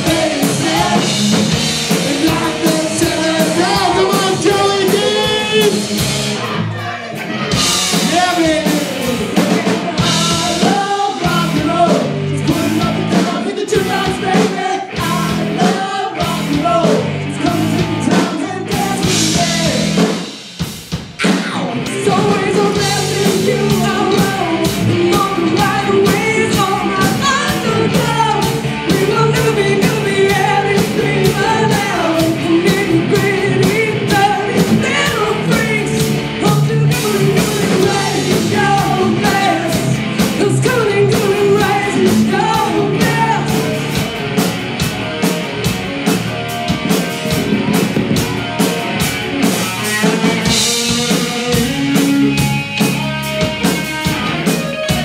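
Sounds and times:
person singing: 0.0 - 20.1, 21.2 - 44.0
drums: 0.0 - 55.0
electric guitar: 0.0 - 55.0.

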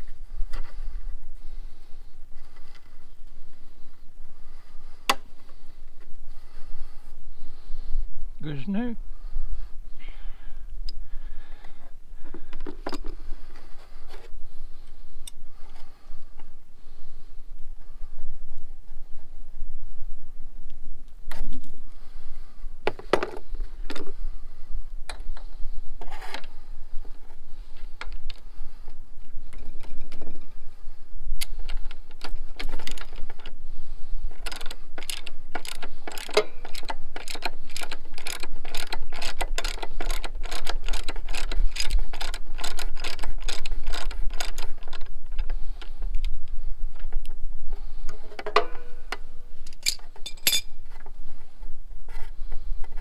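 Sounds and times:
ratchet wrench clicking: 34.4 - 45.5
hand tools clicking and knocking: 34.4 - 45.9, 48.1 - 50.7.

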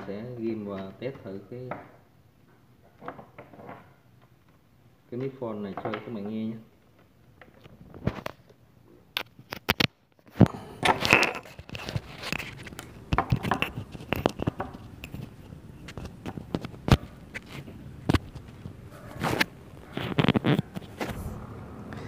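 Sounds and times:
microphone cable rustling and scraping: 7.4 - 8.5, 9.1 - 22.0.

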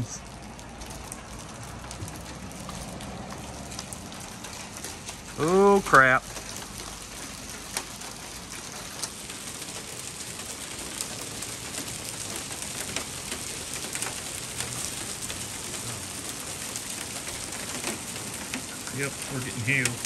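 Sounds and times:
hailstones striking: 0.0 - 20.0
heavy rain hissing: 0.0 - 20.0.

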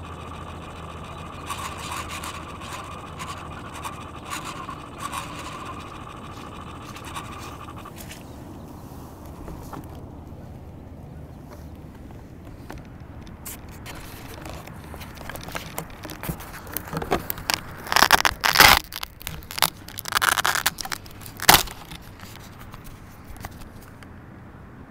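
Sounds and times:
fingers rubbing on camera: 12.5 - 24.0.

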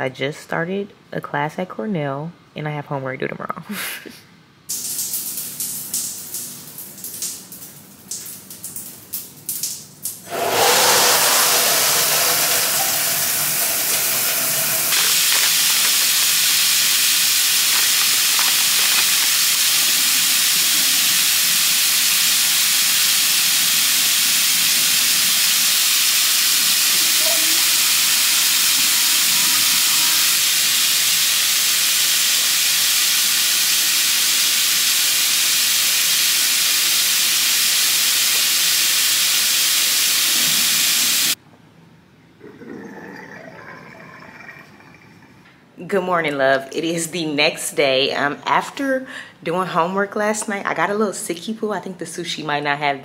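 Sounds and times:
shower water spraying: 4.7 - 41.4.

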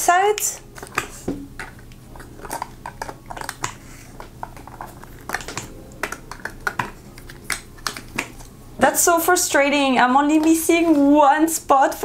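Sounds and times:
small bottles clicking and tapping: 0.8 - 8.5.

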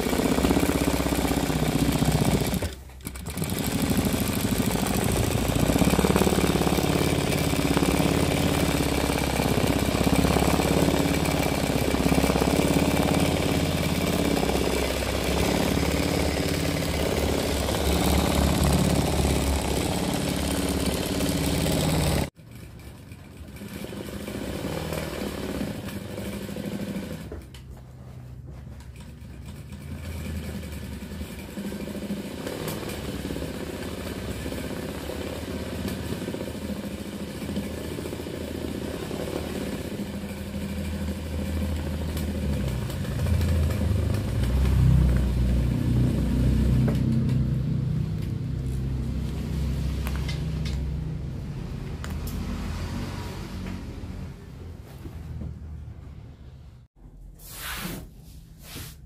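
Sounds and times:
sewing machine stitching: 0.0 - 49.0.

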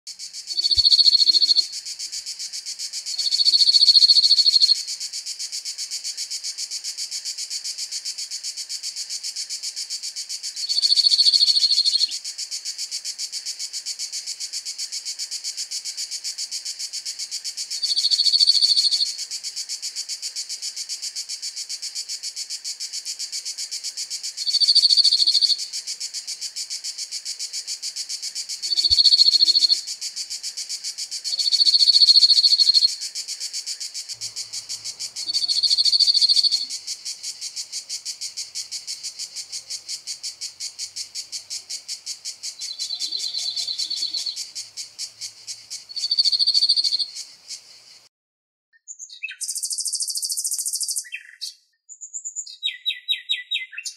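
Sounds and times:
cicadas buzzing: 0.1 - 48.1, 49.4 - 51.4
bird rattling trill: 23.0 - 47.7.

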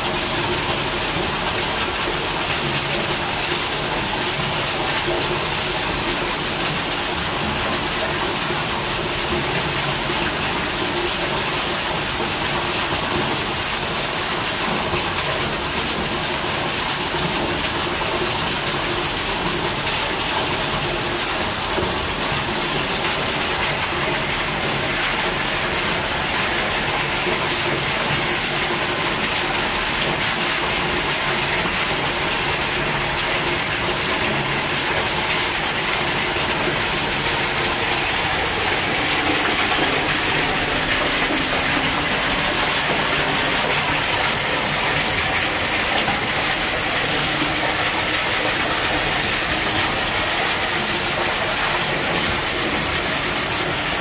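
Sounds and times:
waterfall splashing into pool: 0.0 - 54.0.

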